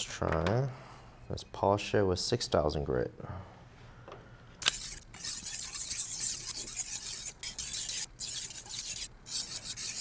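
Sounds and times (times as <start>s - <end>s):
knife scraping on whetstone: 4.7s - 10.0s.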